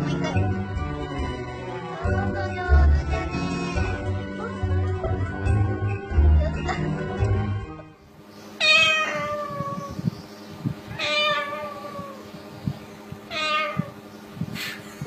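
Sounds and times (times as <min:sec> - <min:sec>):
music: 0:00.0 - 0:08.1
cockatoo meowing: 0:08.6 - 0:10.1, 0:10.9 - 0:12.4, 0:13.3 - 0:14.0.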